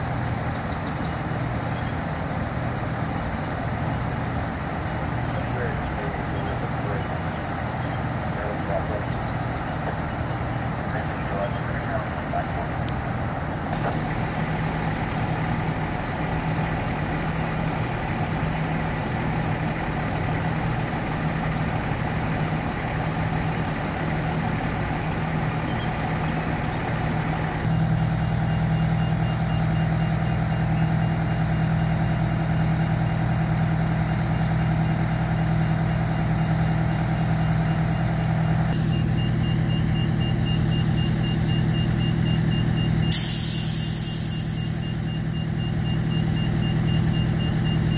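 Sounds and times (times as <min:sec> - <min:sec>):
diesel engines idling: 0:00.0 - 0:47.9
high electronic beeps: 0:38.8 - 0:47.9.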